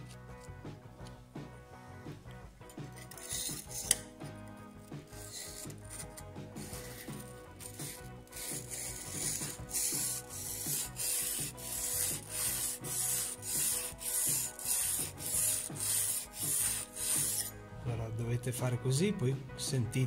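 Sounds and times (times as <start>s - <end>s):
plane iron rubbing on sharpening stone: 2.8s - 4.1s, 5.1s - 17.6s.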